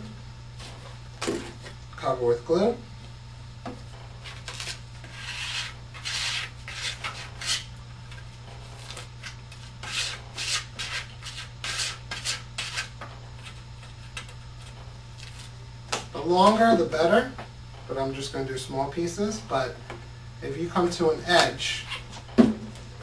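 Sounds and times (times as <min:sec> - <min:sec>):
paper rustling strokes: 0:04.2 - 0:07.7.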